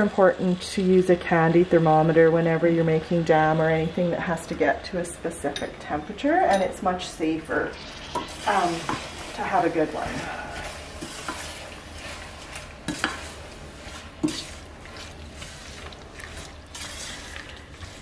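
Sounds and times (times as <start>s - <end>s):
fruit sizzling: 7.2s - 18.0s
spatula scraping saucepan: 7.5s - 18.0s.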